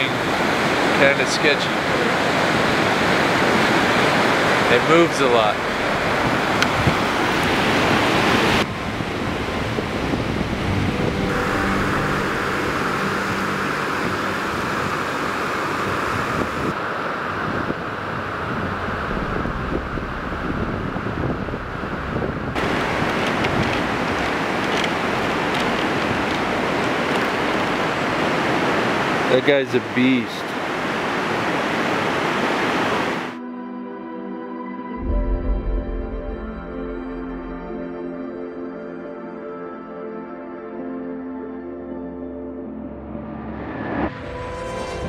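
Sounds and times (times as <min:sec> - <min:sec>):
river rushing: 0:00.0 - 0:33.4
wind noise on microphone: 0:05.4 - 0:29.3.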